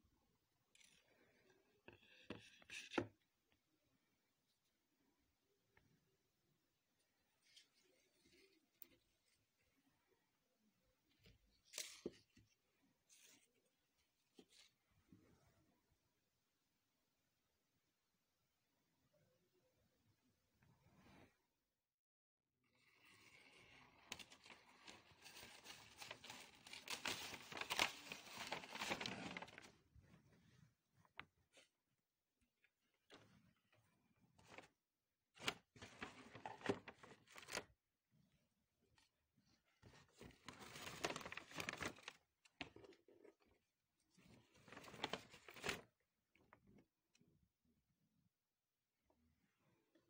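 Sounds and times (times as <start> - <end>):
paper bag crinkling: 24.3 - 29.7.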